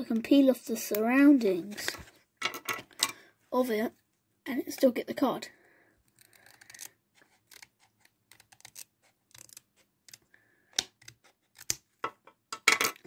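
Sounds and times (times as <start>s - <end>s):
scissors snipping plastic: 6.1s - 10.2s, 10.8s - 11.8s.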